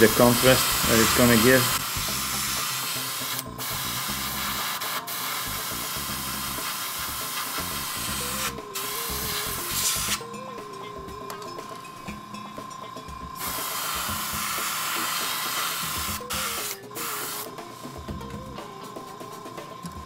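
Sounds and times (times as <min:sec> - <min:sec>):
airbrush spraying hiss: 0:00.0 - 0:10.2, 0:13.4 - 0:18.0.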